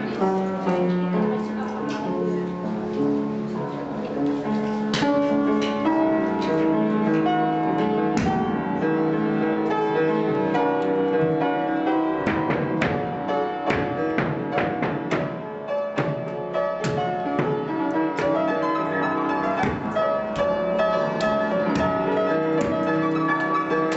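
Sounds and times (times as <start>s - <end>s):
instrumental music held notes: 0.0s - 23.9s
sharp knocks: 8.2s - 8.6s, 12.2s - 18.8s, 19.5s - 23.9s.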